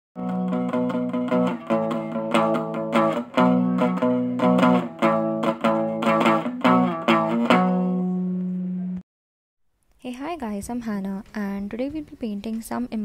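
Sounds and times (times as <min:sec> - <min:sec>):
strummed guitar chords: 0:00.2 - 0:09.0.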